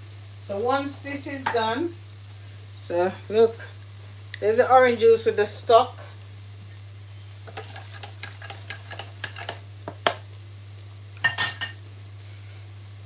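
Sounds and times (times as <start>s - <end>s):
low steady hum: 0.0s - 13.0s
cutlery clattering: 11.2s - 11.8s.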